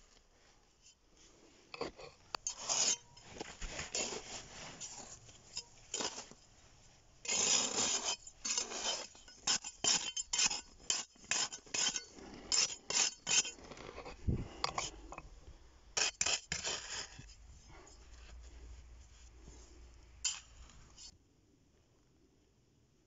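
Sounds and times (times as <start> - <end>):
sandy soil being scraped: 1.2 - 6.4, 7.2 - 15.0, 16.0 - 21.1.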